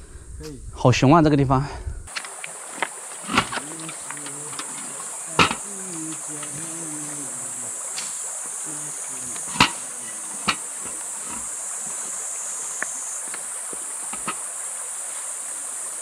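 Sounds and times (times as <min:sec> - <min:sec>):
high-pitched insect drone: 0:02.2 - 0:16.0
sharp knocks: 0:03.2 - 0:06.7, 0:09.3 - 0:12.0, 0:14.1 - 0:14.4.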